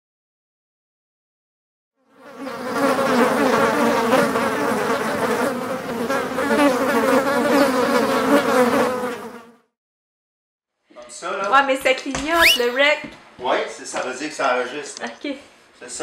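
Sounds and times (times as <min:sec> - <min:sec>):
wasps buzzing: 0:02.1 - 0:09.6.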